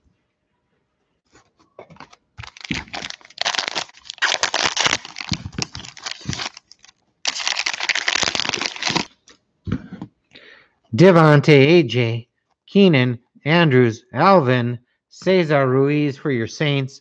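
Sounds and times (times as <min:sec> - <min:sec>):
wrapper crinkling and tearing: 0:01.9 - 0:09.1.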